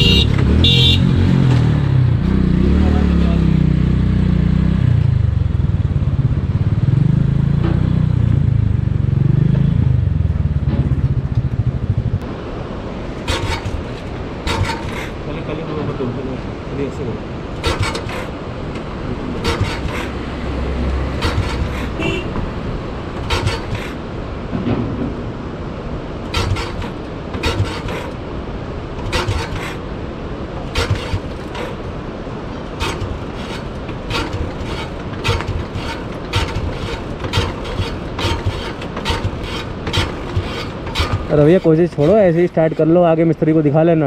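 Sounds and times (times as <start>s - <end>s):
low engine rumble: 0.0s - 44.0s
sharp mechanical clacks: 13.2s - 15.2s, 17.6s - 20.2s, 21.1s - 22.4s, 23.1s - 24.0s, 26.3s - 28.2s, 29.0s - 29.8s, 30.6s - 31.9s, 32.7s - 43.0s.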